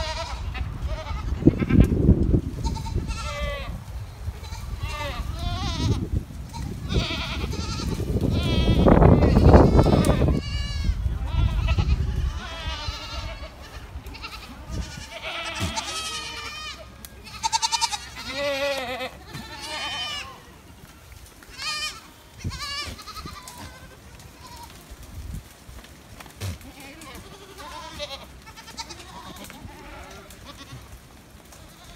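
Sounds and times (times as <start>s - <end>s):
goat herd bleating: 0.0s - 25.1s, 26.3s - 31.9s.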